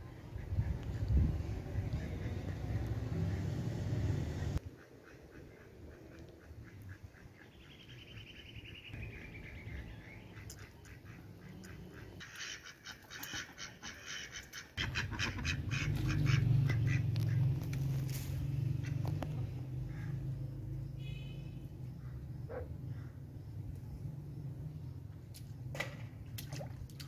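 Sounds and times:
ducks quacking: 9.2s - 20.4s.

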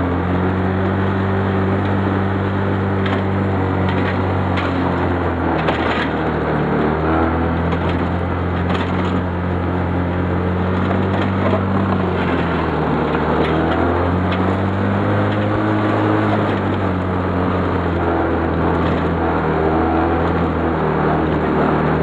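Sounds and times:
quad engine running: 0.0s - 22.0s.

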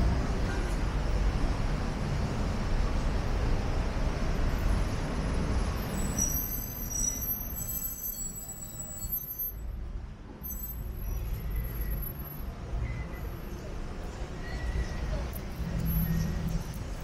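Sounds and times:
faint high squeaks: 6.0s - 9.6s, 14.3s - 16.8s
passing vehicles rumbling: 9.8s - 17.0s.

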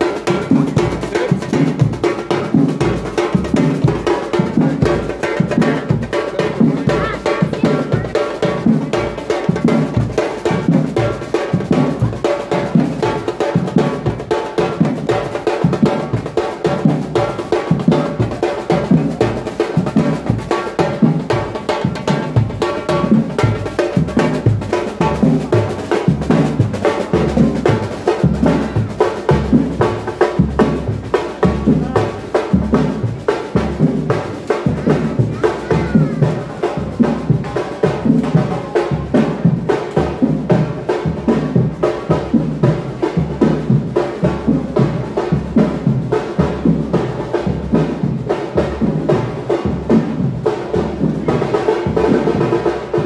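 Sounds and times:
street drummers playing: 0.0s - 53.0s.

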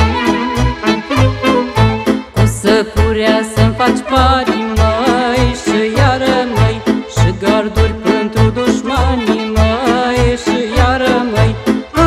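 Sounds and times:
saxophones playing melody: 0.0s - 2.3s, 8.9s - 11.4s
accordion: 0.0s - 12.0s.

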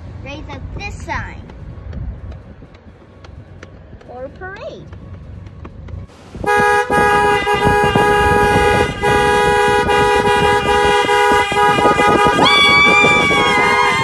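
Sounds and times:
two-note car horn honks: 6.4s - 12.6s.

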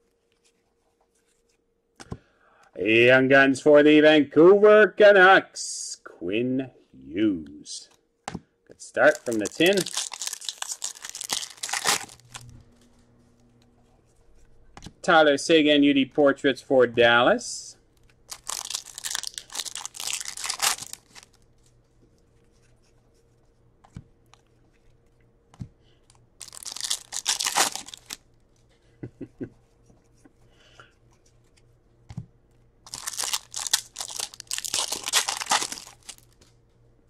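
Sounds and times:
card pack wrapper tearing: 9.0s - 12.5s, 18.3s - 21.4s, 26.4s - 28.2s, 32.9s - 36.4s.

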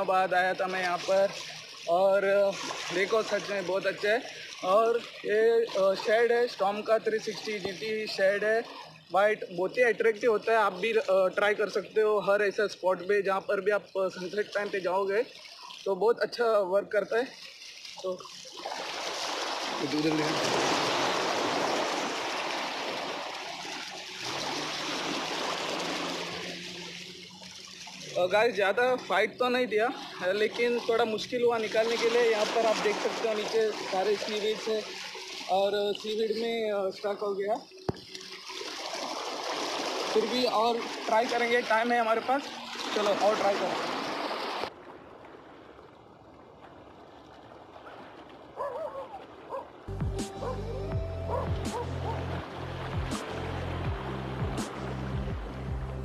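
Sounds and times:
water trickling back: 0.0s - 56.0s
small waves washing over rocks: 18.6s - 28.2s, 31.5s - 36.1s, 38.3s - 49.7s
high whining yelps: 48.6s - 49.6s
background music with bass: 49.9s - 56.0s.

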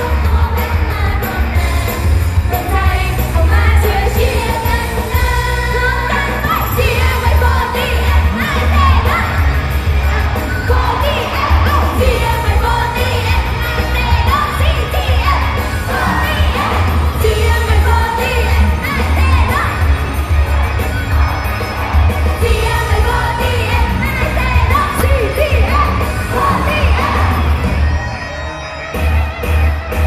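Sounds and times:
woman singing into a microphone: 0.0s - 9.5s.

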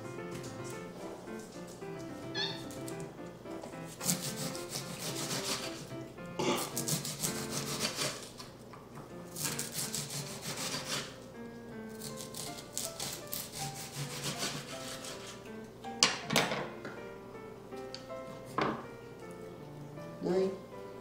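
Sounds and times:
background music: 0.0s - 8.3s, 9.0s - 21.0s
knife slicing onion on wooden board: 3.9s - 5.8s, 6.5s - 8.5s, 9.4s - 11.2s, 12.0s - 15.4s.

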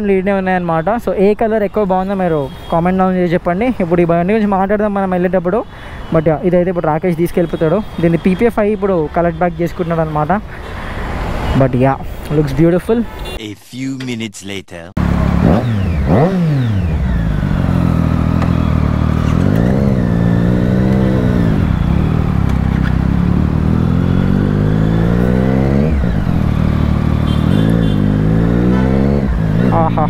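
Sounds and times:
motorcycle engine revving: 15.0s - 30.0s.

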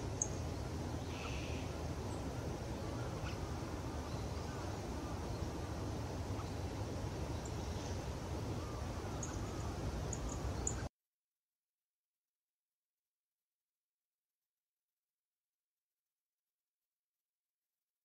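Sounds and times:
low outdoor rumble: 0.0s - 10.9s
songbird chip calls: 0.0s - 10.9s.

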